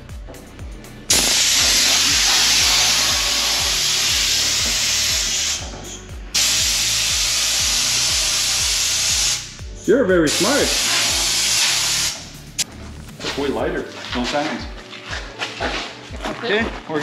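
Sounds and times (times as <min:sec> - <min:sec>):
compressed air blasting hiss: 0:01.1 - 0:09.7, 0:10.3 - 0:12.4.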